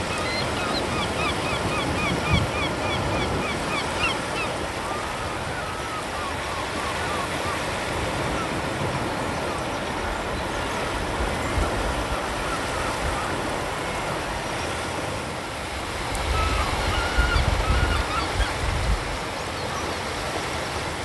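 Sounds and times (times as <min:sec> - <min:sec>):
bird calls: 0:00.0 - 0:10.8, 0:16.2 - 0:18.6
waves breaking on a beach: 0:00.0 - 0:21.0.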